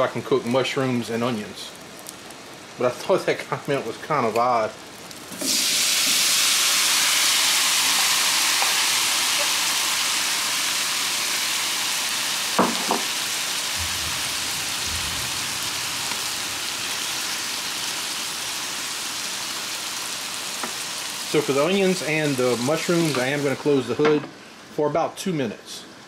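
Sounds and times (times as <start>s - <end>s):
mushrooms sizzling on griddle: 0.0s - 24.7s
utensil knocking on griddle: 12.6s - 13.2s.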